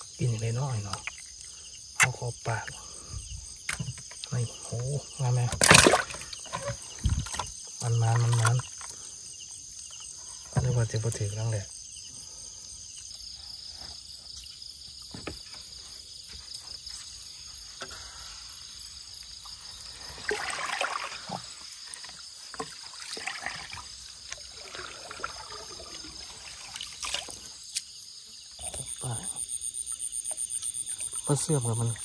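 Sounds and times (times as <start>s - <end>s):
crickets chirring: 0.0s - 32.0s
water sloshing and splashing: 0.8s - 11.3s, 19.3s - 27.8s.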